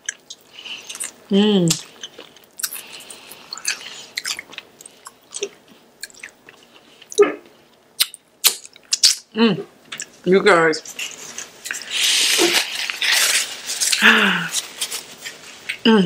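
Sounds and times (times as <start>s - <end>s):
crunchy chewing and biting: 0.0s - 7.1s, 10.9s - 15.1s.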